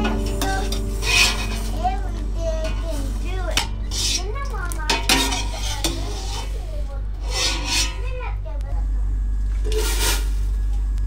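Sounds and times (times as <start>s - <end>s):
low hum: 0.0s - 11.0s
metal spoon scraping steel pot: 0.6s - 1.8s, 3.5s - 4.3s, 4.9s - 6.6s, 7.2s - 8.1s.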